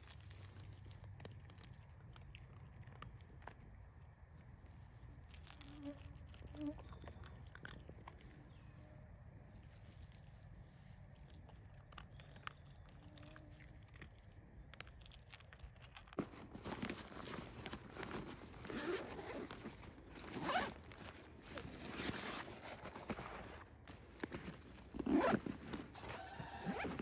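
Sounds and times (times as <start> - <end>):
backpack zippers pulled open: 16.2 - 27.0
fabric rustling: 16.2 - 27.0.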